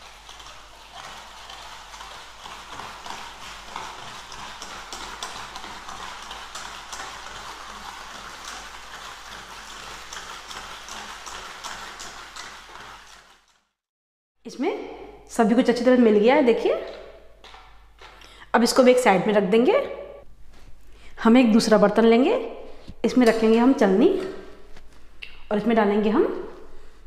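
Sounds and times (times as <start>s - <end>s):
whisk clicking in metal bowl: 0.0s - 13.6s.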